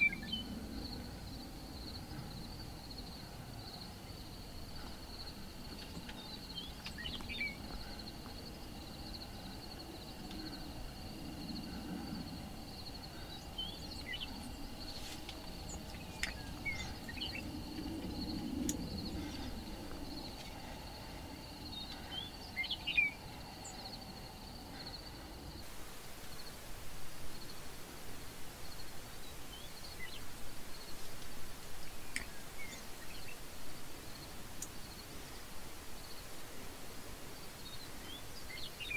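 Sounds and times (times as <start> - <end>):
bird chirps: 0.0 - 0.5, 4.8 - 8.1, 13.0 - 17.6, 21.7 - 23.9
faint low rumble: 0.0 - 38.6
high insect drone: 0.0 - 38.9
uneven rustle: 0.7 - 24.1.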